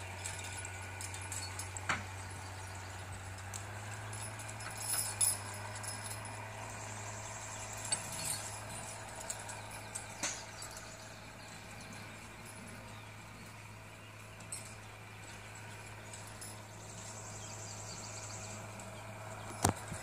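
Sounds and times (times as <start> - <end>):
metal chains jingling and clinking: 0.0 - 20.0.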